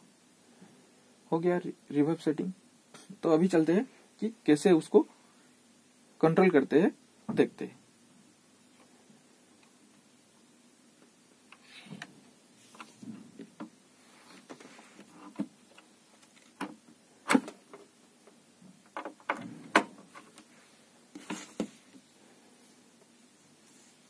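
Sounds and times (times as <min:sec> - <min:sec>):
clicks and knocks on mixing desk: 0:16.5 - 0:17.9, 0:18.9 - 0:20.5.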